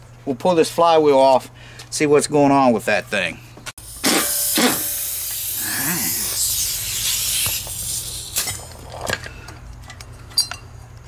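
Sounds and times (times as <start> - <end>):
air hissing: 3.8 - 8.7
pneumatic impact wrench: 3.8 - 9.2.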